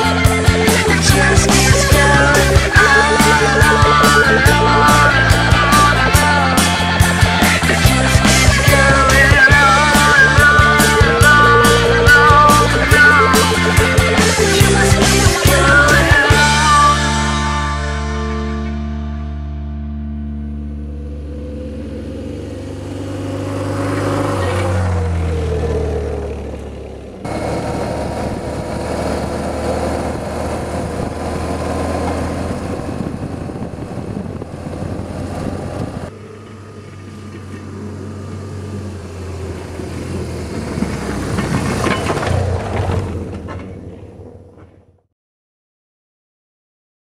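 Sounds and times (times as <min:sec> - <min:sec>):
motorcycle engine riding: 0:00.0 - 0:18.1, 0:20.4 - 0:45.0
motorcycle passing by: 0:20.7 - 0:45.0
wind noise: 0:27.5 - 0:36.1.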